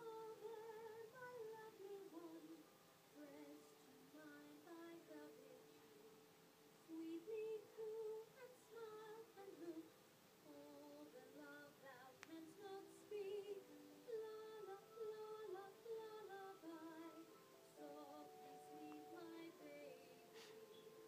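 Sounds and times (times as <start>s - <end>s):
slow quiet melody: 0.0s - 21.0s
faint click: 12.2s - 12.4s.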